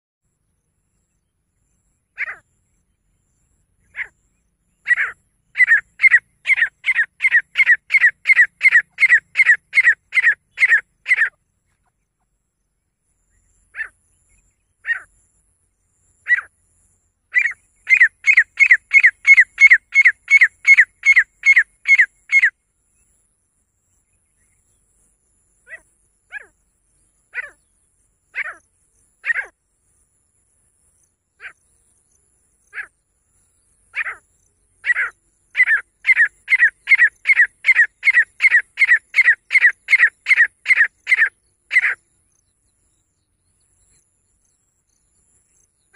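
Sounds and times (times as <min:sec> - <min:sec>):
bird calling sharp repeated notes: 0:02.2 - 0:02.4, 0:03.8 - 0:11.8, 0:17.3 - 0:22.6, 0:29.2 - 0:29.5, 0:34.0 - 0:34.2, 0:34.8 - 0:42.0.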